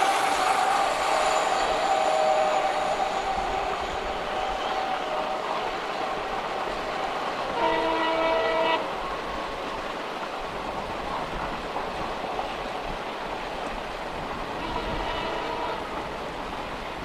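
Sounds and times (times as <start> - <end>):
train horn blast: 0.0 - 9.0, 14.5 - 16.2
passenger train running: 0.0 - 17.0.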